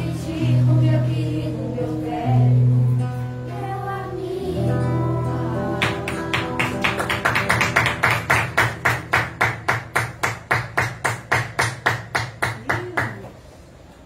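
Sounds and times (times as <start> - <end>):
rhythmic clapping in unison: 5.8 - 13.3.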